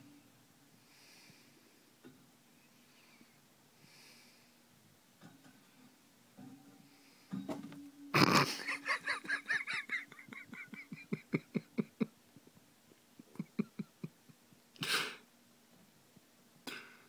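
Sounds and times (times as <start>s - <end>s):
person laughing: 8.2s - 12.1s, 13.2s - 14.4s.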